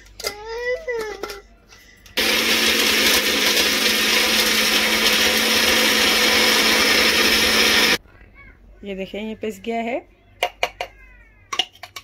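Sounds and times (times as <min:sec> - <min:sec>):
mixer grinder grinding spices: 0:02.2 - 0:08.0.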